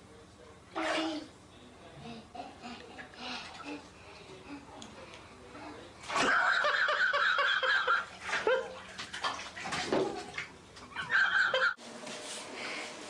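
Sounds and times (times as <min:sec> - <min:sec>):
bathwater splashing: 0:06.0 - 0:11.6.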